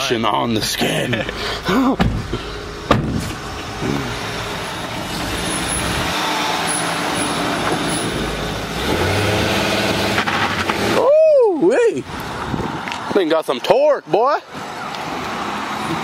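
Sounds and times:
minivan engine pulling away: 0:01.1 - 0:11.1
car door shutting: 0:01.9 - 0:03.7.

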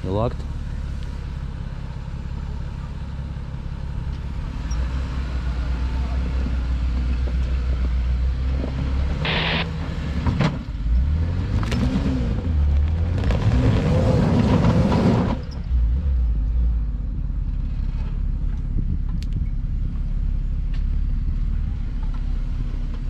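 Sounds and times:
engine revving and rumbling: 0:00.0 - 0:23.0.

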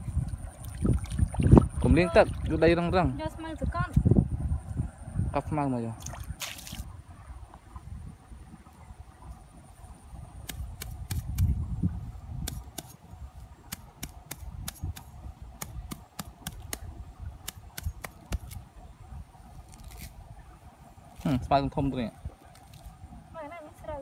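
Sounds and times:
grass stems snipping and snapping: 0:12.4 - 0:13.0, 0:13.7 - 0:18.6, 0:19.6 - 0:20.2.

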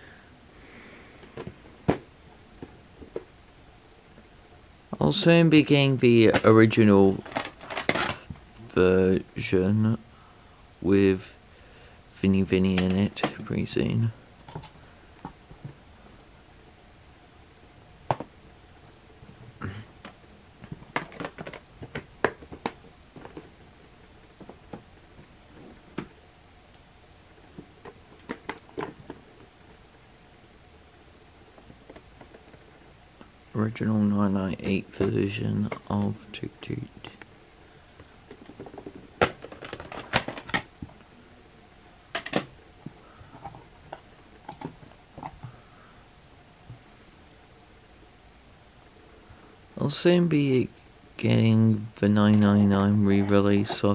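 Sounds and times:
plastic case clicking and clacking: 0:20.7 - 0:23.5, 0:38.3 - 0:40.7.

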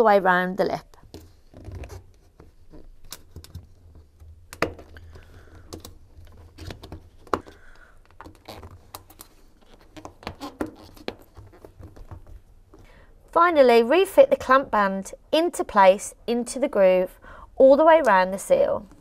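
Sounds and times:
rubber rubbing: 0:01.1 - 0:12.8.

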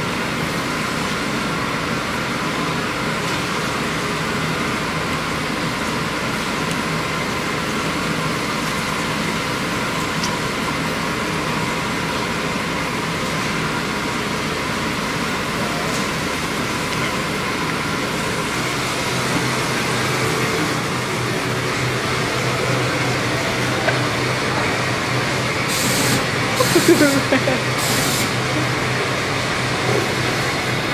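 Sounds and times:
extractor fans running: 0:00.0 - 0:30.9
constant hum: 0:15.6 - 0:30.9.

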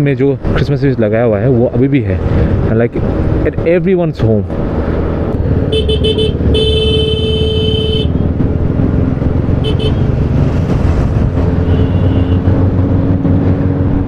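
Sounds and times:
scooter engine and road noise: 0:00.0 - 0:14.0
vehicle horn: 0:05.7 - 0:08.2, 0:09.6 - 0:10.1, 0:11.6 - 0:12.5.

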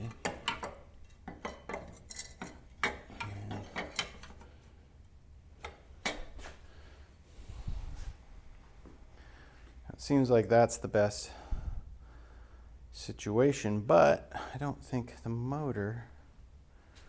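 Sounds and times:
metal clinks and clanks: 0:00.0 - 0:04.4.

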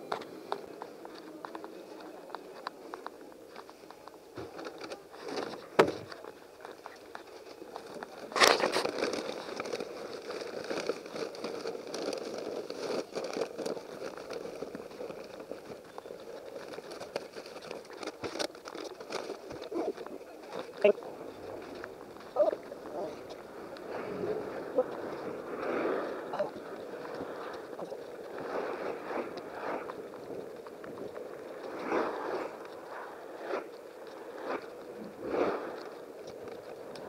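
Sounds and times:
paper bag rustling: 0:07.1 - 0:30.4.

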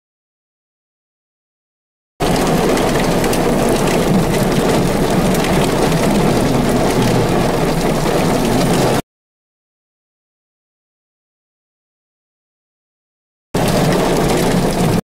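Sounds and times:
heavy rain on vehicle roof: 0:02.2 - 0:09.0, 0:13.6 - 0:15.0.

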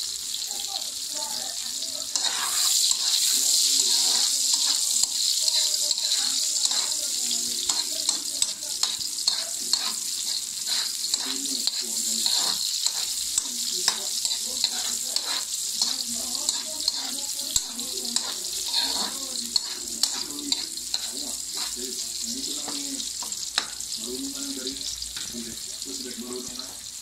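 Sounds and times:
onions sizzling in a wok: 0:00.0 - 0:27.0
metal spoon tapping a pan: 0:02.1 - 0:21.8, 0:22.5 - 0:23.9.

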